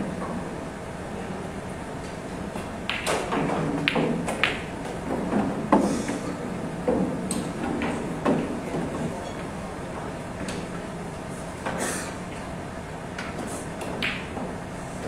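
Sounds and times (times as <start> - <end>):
pool balls clicking together: 2.9 - 5.5
cue striking ball: 2.9 - 5.8, 13.8 - 14.4.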